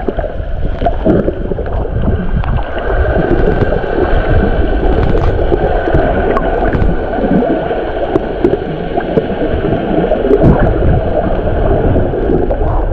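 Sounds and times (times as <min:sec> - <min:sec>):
water sloshing underwater: 0:00.0 - 0:12.9.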